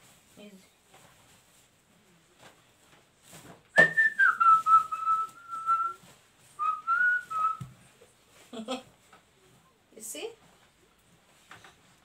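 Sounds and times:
person whistling: 3.8 - 6.0, 6.6 - 7.7.

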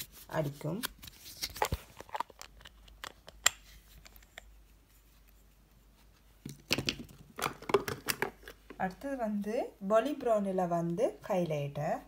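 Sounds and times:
plastic cases clicking and tapping: 6.5 - 8.8.

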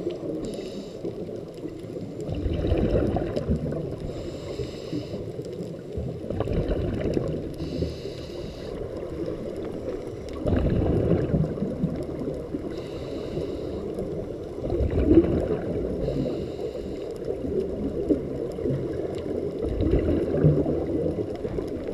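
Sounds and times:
exhaled bubbles rumbling: 0.0 - 21.9
regulator inhale hiss: 0.2 - 1.4, 4.0 - 5.6, 7.5 - 9.1, 12.6 - 14.2, 16.0 - 17.4.

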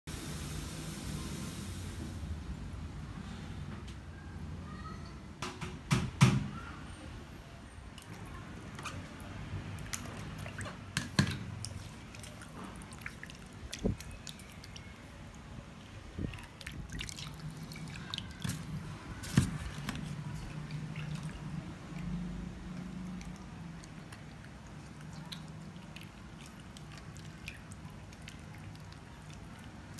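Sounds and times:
water splashing in a bowl: 7.9 - 29.9.

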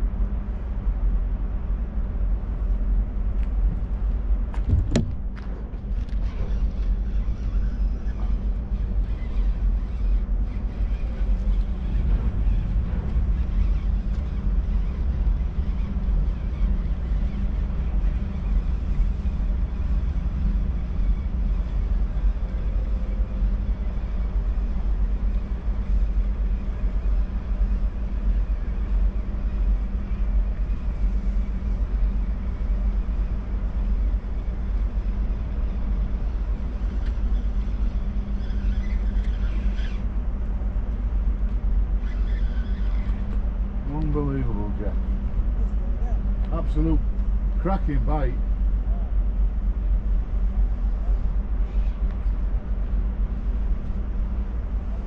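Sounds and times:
wind buffeting microphone: 0.0 - 42.2
constant hum: 0.0 - 55.0
low machinery rumble: 0.0 - 55.0.

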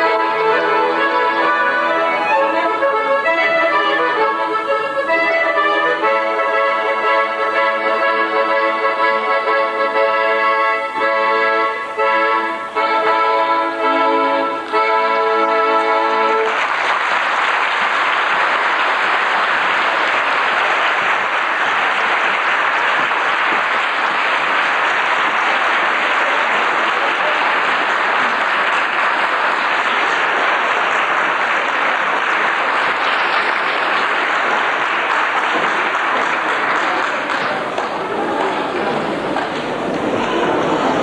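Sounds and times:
audience applauding: 0.0 - 8.0, 13.8 - 41.0.

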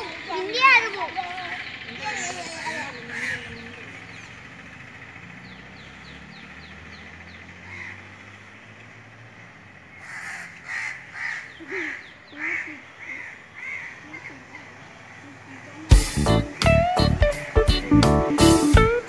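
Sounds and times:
crow cawing: 2.0 - 4.0, 7.6 - 8.5, 9.9 - 15.6.

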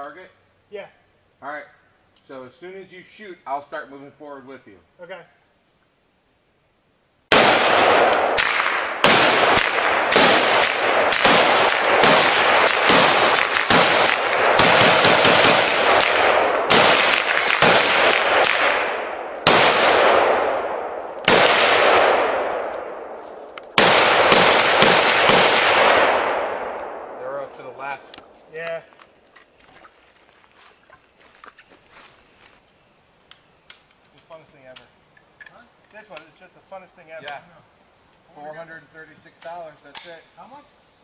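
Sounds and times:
rapid gunfire with echo: 7.3 - 23.2, 23.8 - 27.4.

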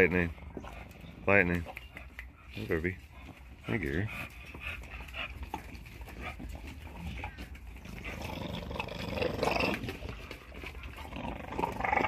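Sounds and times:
dogs growling during play: 0.0 - 1.6, 4.1 - 12.0.

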